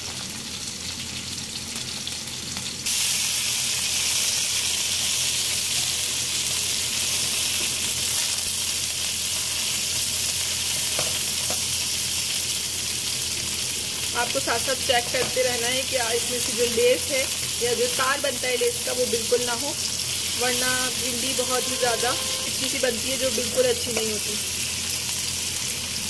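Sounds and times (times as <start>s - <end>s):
vegetables sizzling in oil: 0.0s - 26.0s
spatula turning food in wok: 20.0s - 22.8s.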